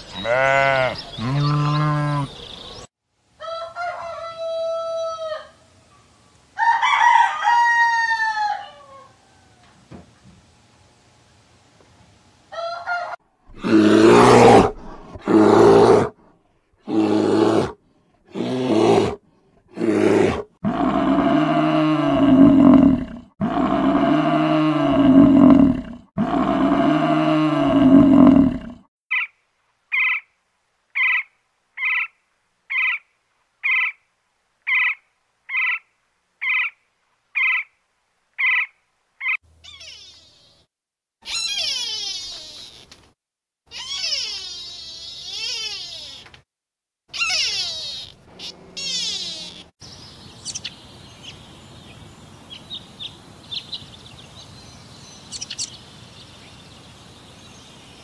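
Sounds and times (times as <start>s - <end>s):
rough animal calls: 12.6s - 16.2s, 16.8s - 29.3s, 38.4s - 43.0s, 43.7s - 46.3s, 47.1s - 49.8s
buffalo bellowing: 13.5s - 16.1s.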